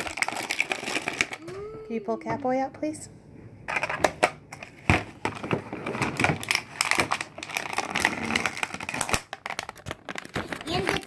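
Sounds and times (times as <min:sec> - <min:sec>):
plastic packaging crackling: 0:00.0 - 0:01.5, 0:05.2 - 0:11.0.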